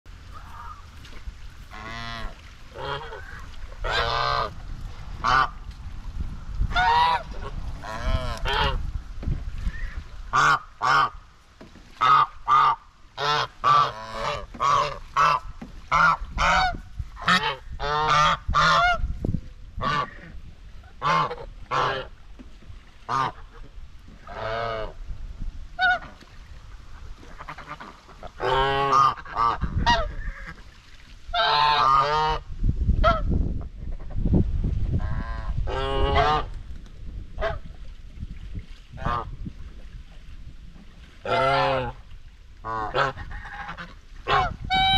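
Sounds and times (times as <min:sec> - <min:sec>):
geese honking: 0:00.3 - 0:01.0, 0:01.6 - 0:04.6, 0:06.7 - 0:08.8, 0:12.0 - 0:19.0, 0:21.0 - 0:22.1, 0:27.3 - 0:30.6, 0:31.3 - 0:32.4, 0:35.2 - 0:36.5, 0:41.2 - 0:42.0, 0:42.6 - 0:44.9.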